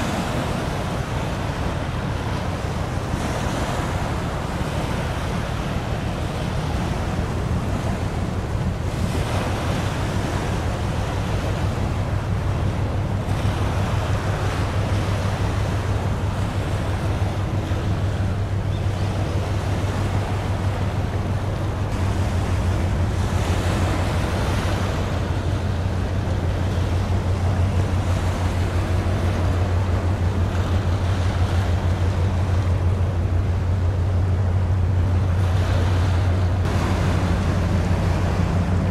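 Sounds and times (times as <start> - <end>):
ship engine drone: 0.0 - 38.9
waves washing: 0.0 - 38.9.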